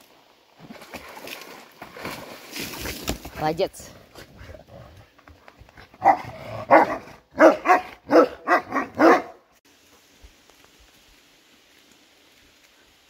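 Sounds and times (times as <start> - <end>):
dog barking: 6.0 - 9.4.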